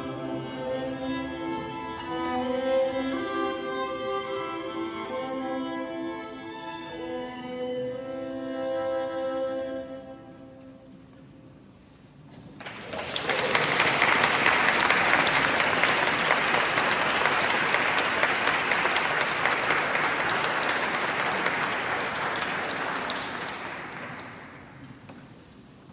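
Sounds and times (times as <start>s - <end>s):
audience applauding: 12.6s - 24.9s.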